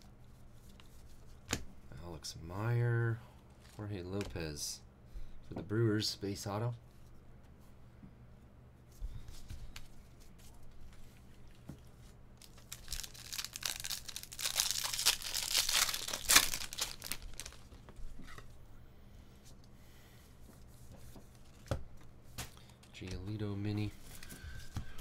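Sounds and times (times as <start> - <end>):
plastic wrapper tearing and crinkling: 12.4 - 17.8.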